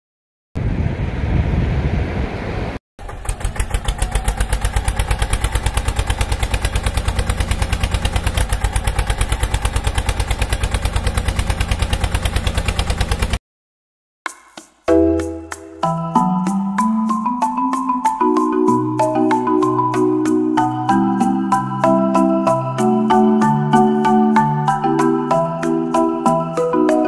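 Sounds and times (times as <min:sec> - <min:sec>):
diesel engine chugging: 0:03.0 - 0:13.4.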